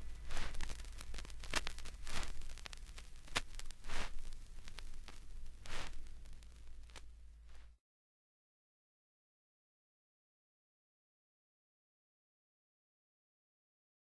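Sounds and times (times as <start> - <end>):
soft rustling swishes: 0.0 - 5.0, 5.6 - 6.1
low steady hum: 0.0 - 7.8
sharp crackles: 0.0 - 7.8.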